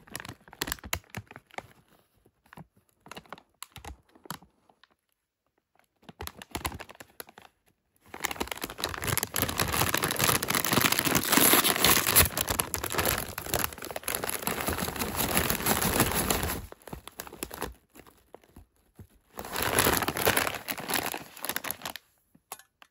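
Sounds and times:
plastic bag crinkling: 6.1 - 22.2.

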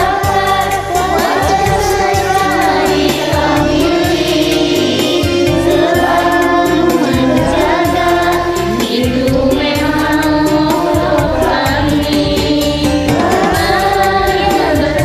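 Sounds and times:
group of people singing: 0.0 - 15.0
karaoke backing track: 0.0 - 15.0.

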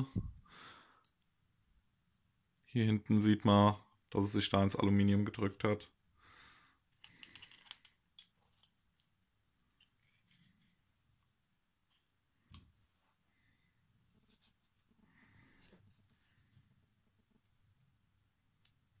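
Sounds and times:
small metal parts clicking: 6.9 - 9.1.

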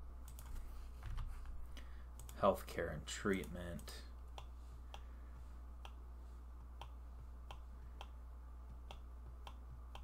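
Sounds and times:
low steady hum: 0.0 - 10.0
computer mouse clicks: 0.2 - 1.3, 5.8 - 6.0, 6.6 - 10.0.

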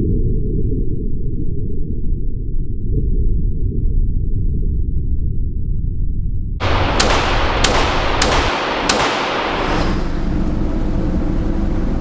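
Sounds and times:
pistol shots echoing indoors: 6.6 - 10.2.

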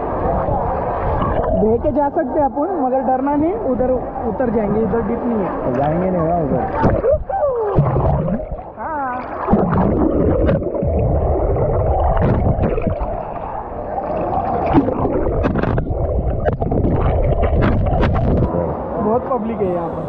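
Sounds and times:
bubbles gurgling: 0.0 - 2.2, 4.0 - 18.6
muffled underwater river rush: 0.0 - 20.0
underwater clicks and knocks: 9.5 - 11.1, 12.0 - 13.1, 14.6 - 18.5.

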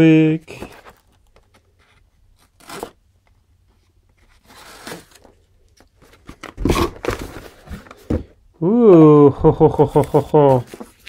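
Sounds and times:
knife slitting packing tape: 2.4 - 3.0.

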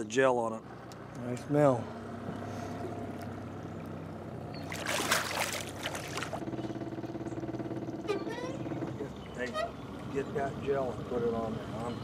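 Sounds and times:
boat motor idling: 2.0 - 12.0
fish splashing into water: 3.2 - 6.4.

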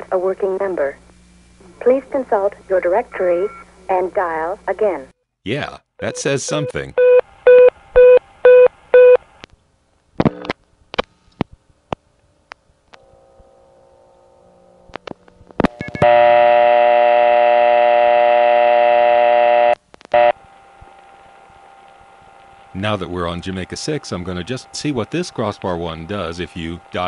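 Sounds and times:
loud buzzy dial tone: 15.7 - 27.0.

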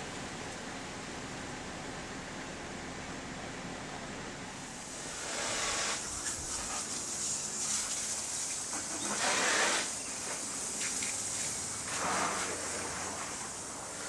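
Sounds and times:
steady high hiss: 0.0 - 14.0
owl hoarse hissing calls: 5.0 - 13.3.

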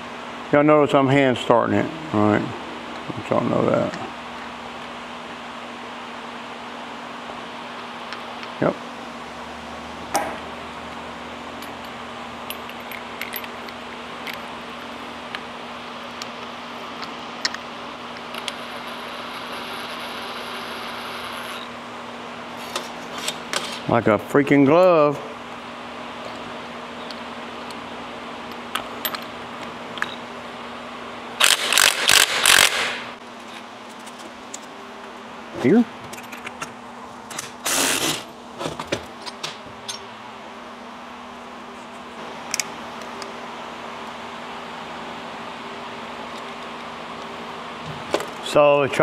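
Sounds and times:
steady background hum: 0.0 - 49.0
impact wrench bursts: 31.4 - 33.2, 37.6 - 38.3.

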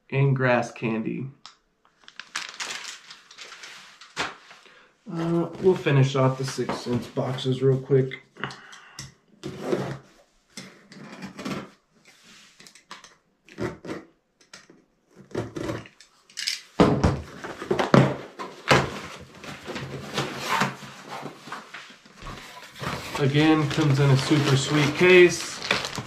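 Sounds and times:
packing paper rustling: 2.0 - 4.6, 18.5 - 26.0.

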